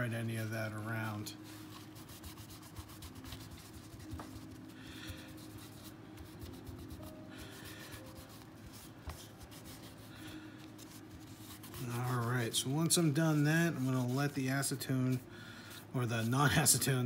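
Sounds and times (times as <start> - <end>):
paper towel rubbing on metal: 0.3 - 17.0.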